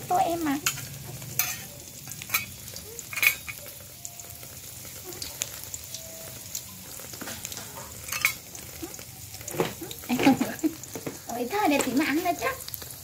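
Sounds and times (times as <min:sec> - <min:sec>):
food sizzling in a pan: 0:00.0 - 0:13.0.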